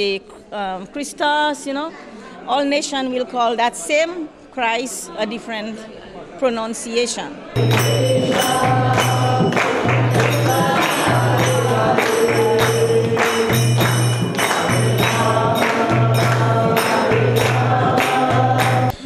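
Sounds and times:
group singing: 7.6s - 19.0s
jingling hand percussion: 7.6s - 19.0s.

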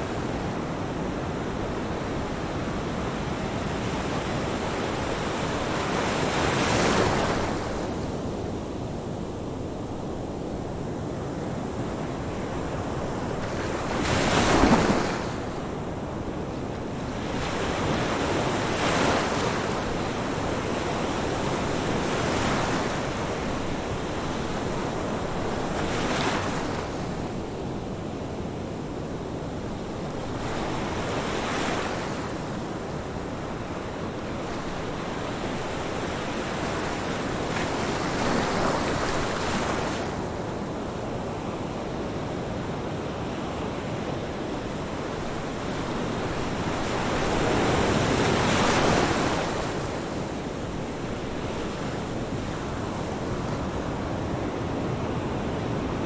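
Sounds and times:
ocean waves breaking: 13.5s - 15.6s.

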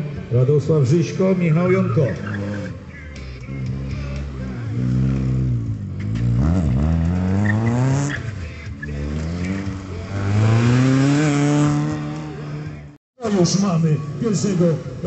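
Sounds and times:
car engine revving hard: 3.6s - 8.3s, 8.9s - 12.8s.

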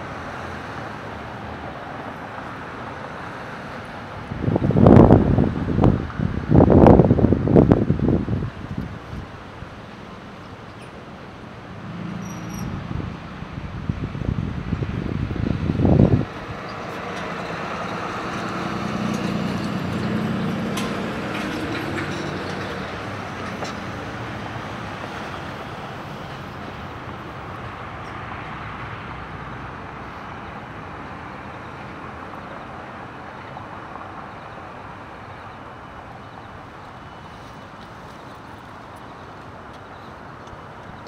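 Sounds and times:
vehicle passing: 11.4s - 33.2s.

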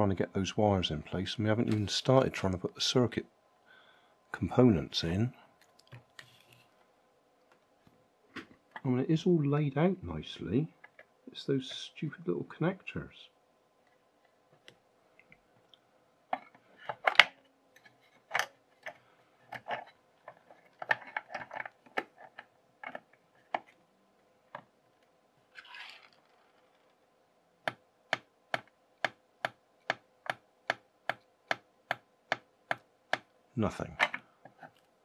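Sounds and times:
wires clicking and rustling: 5.6s - 8.9s, 13.9s - 23.8s, 24.5s - 27.1s.

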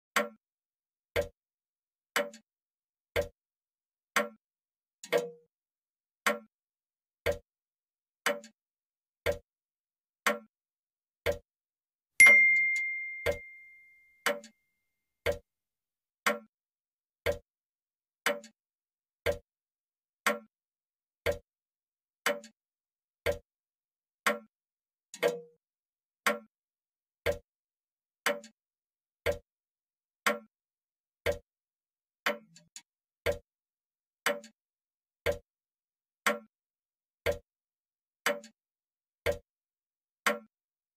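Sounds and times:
clock ticking: 1.2s - 1.4s, 3.2s - 3.4s, 5.1s - 5.4s, 7.2s - 7.4s, 9.2s - 9.4s, 11.2s - 11.4s, 12.2s - 14.5s, 15.2s - 15.4s, 17.2s - 17.5s, 19.2s - 19.4s, 21.2s - 21.4s, 23.2s - 23.4s, 25.2s - 25.4s, 27.2s - 27.4s, 29.2s - 29.4s, 31.2s - 31.4s, 33.2s - 33.4s, 35.2s - 35.4s, 37.2s - 37.4s
clock bell ding: 12.2s - 14.2s.

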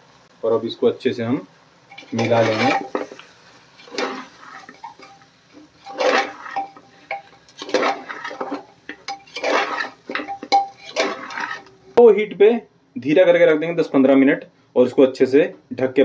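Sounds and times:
spatula scraping pot: 1.9s - 11.8s.

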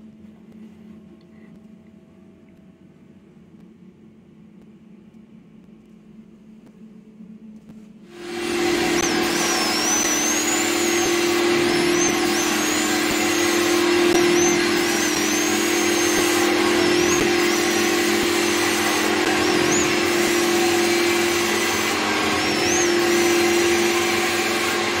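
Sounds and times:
carpet extraction machine hum: 8.1s - 25.0s
high wavering whistle: 8.2s - 25.0s
rushing suction noise: 8.2s - 25.0s.

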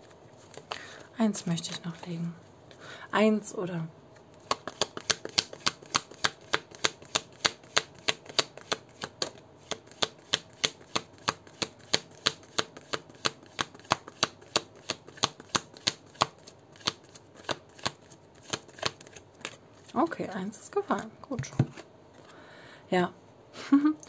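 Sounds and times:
cards being shuffled: 0.0s - 1.0s, 4.3s - 20.0s.

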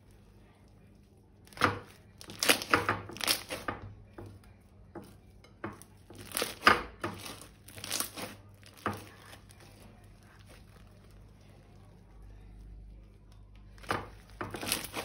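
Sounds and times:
slime crackling and popping: 0.1s - 3.8s, 6.1s - 11.8s, 13.1s - 15.0s.

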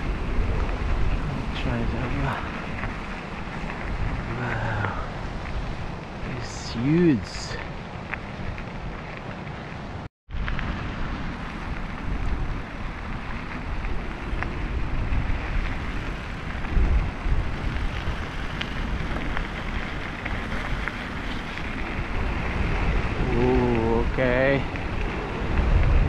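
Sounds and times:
wind buffeting microphone: 0.0s - 26.0s
rushing flooded river: 4.2s - 5.2s.

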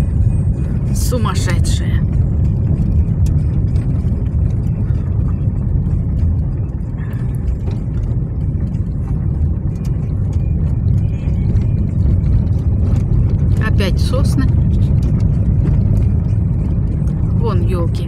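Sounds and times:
knocks and rattles: 0.0s - 18.0s
tyres and engine rumble: 0.0s - 18.0s.

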